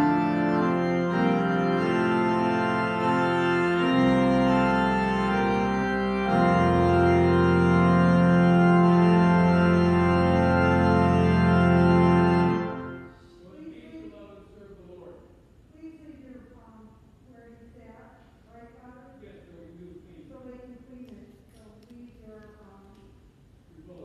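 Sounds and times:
church organ chords: 0:00.0 - 0:14.3.

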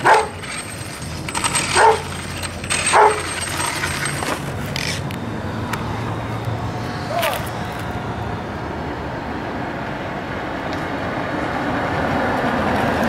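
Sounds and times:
dog barking: 0:00.0 - 0:00.4, 0:01.8 - 0:02.1, 0:02.9 - 0:03.3.

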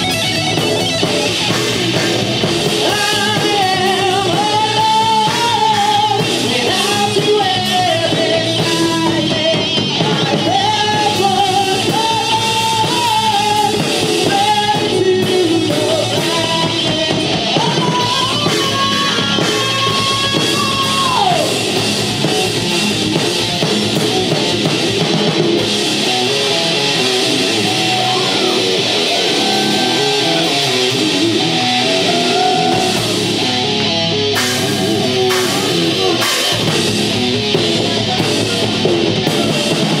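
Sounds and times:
bass guitar: 0:00.0 - 0:40.0
distorted electric guitar: 0:00.0 - 0:40.0
drum kit: 0:00.0 - 0:40.0
person singing: 0:02.6 - 0:22.4, 0:26.6 - 0:36.9.

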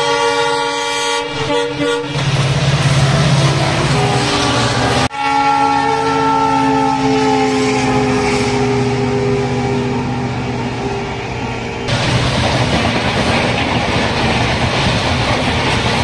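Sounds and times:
locomotive air horn blast: 0:00.0 - 0:11.2
train rushing past: 0:00.0 - 0:16.0.

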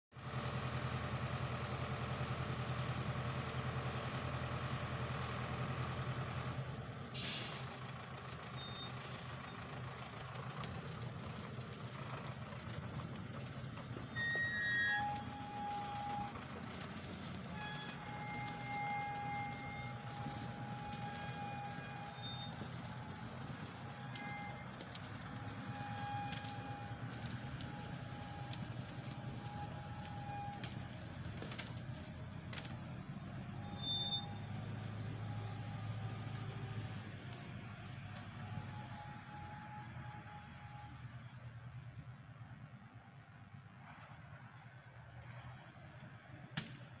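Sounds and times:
tractor engine running: 0:00.2 - 0:47.0
sharp hiss: 0:07.2 - 0:07.8
short high squeaks: 0:08.4 - 0:09.7, 0:14.0 - 0:32.0, 0:32.9 - 0:37.0.

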